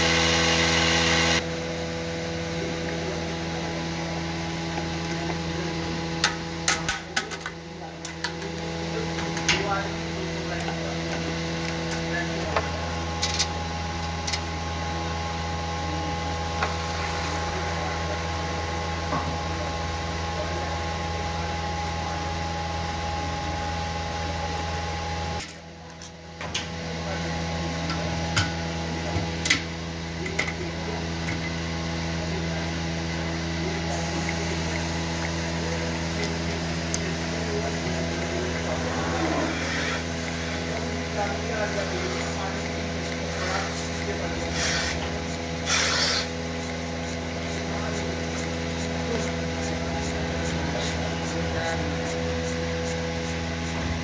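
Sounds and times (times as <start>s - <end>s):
vacuum pump humming: 0.0s - 54.0s.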